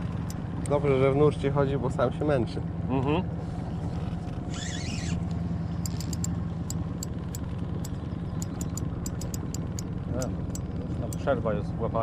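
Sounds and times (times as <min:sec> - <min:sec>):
boat motor humming: 0:00.0 - 0:12.0
sharp high clicks: 0:05.8 - 0:11.3.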